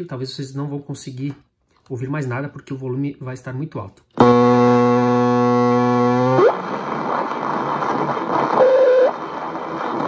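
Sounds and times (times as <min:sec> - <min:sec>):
radio whistle: 0:04.2 - 0:09.6
radio loudspeaker low buzzing tone: 0:04.2 - 0:10.0
loud radio static: 0:06.4 - 0:10.0.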